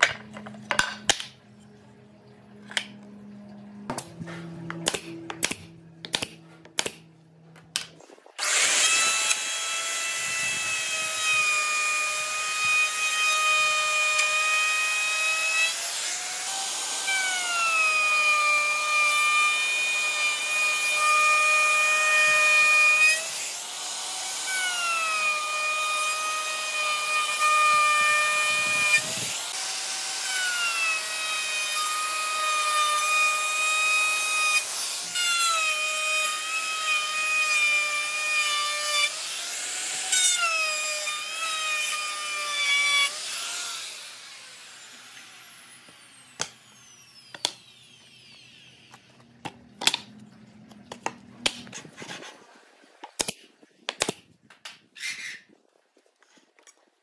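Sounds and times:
wood router whining: 7.7s - 50.0s.

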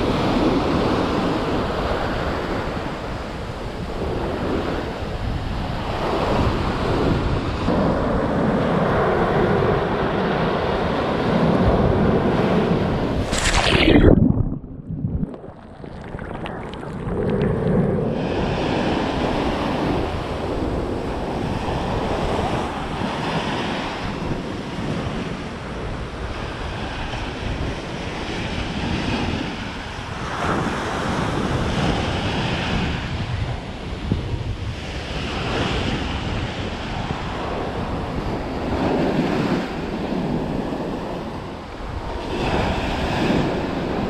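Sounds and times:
wind on microphone: 0.0s - 44.0s
ocean surf breaking: 12.4s - 24.2s.

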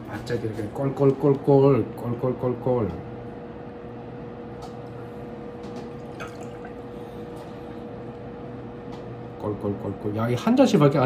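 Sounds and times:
liquid glugging from bottle: 5.8s - 7.4s.

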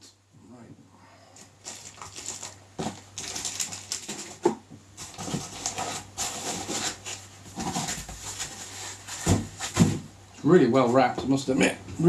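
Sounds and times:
plastic rustling and crinkling: 1.4s - 10.1s.

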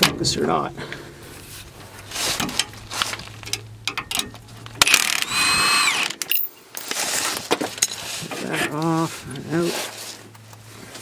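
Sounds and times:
impact wrench whine: 4.8s - 6.3s.

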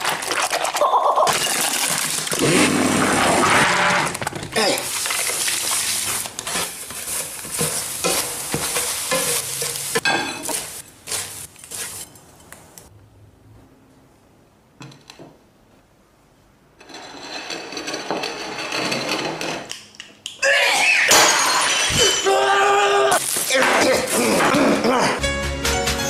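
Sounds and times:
pulp frying: 0.0s - 12.1s
rustling noise: 4.9s - 12.2s
spatula scraping skillet: 5.0s - 12.2s.

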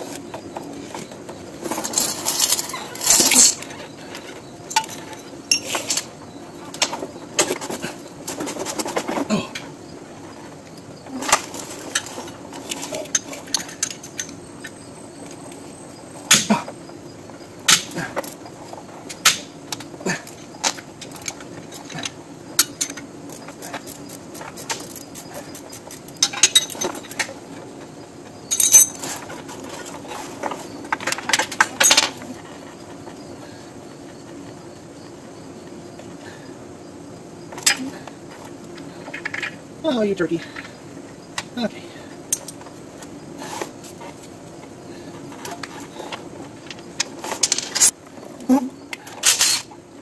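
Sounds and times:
wrenches clinking against bolt: 11.3s - 14.8s, 20.3s - 27.3s, 28.5s - 32.2s, 49.1s - 49.7s.

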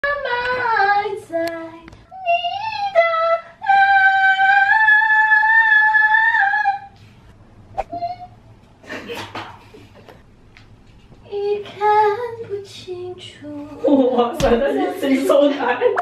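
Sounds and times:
woman's high-pitched vocal call: 7.8s - 8.4s.

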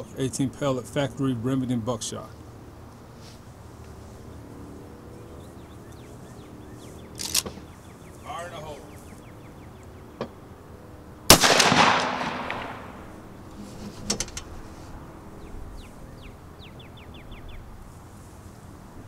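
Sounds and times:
bird chirping: 4.2s - 10.5s, 15.3s - 17.7s
sharp clicks: 7.1s - 7.7s
shotgun shot echoing: 11.3s - 13.1s.

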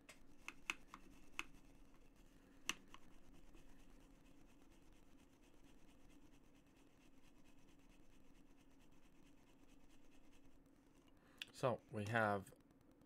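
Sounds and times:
faint sharp clicks and taps: 0.0s - 3.1s
low steady hum: 0.0s - 13.0s.

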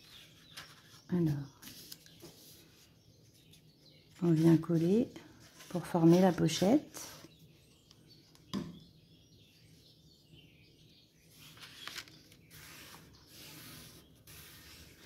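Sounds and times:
hands smoothing card paper: 4.2s - 7.1s, 12.5s - 15.0s.

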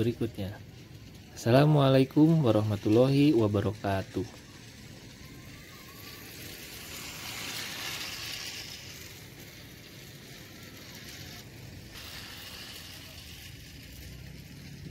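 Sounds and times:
toy train motor whirring: 0.0s - 14.9s.

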